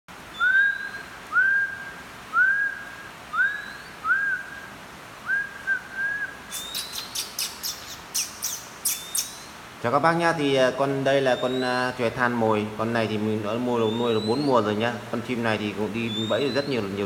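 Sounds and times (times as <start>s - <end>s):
sharp high bird chirps: 0.3s - 4.5s, 5.4s - 9.6s, 11.3s - 11.9s, 16.1s - 16.8s
bird whistling rising note: 0.3s - 9.5s.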